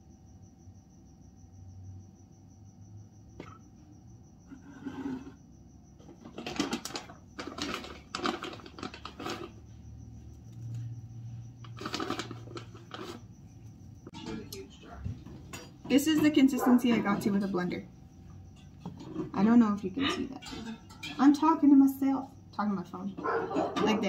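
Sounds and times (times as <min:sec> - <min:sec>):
cricket trilling: 0:00.0 - 0:24.0
utensils scraping and rattling: 0:04.5 - 0:05.4, 0:06.0 - 0:09.6, 0:11.7 - 0:13.3, 0:18.5 - 0:21.6.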